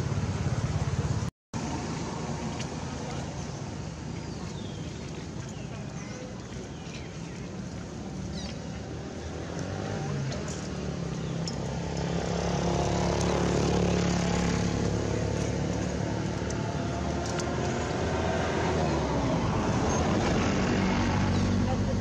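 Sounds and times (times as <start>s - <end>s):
vehicle engine running: 8.1s - 22.0s.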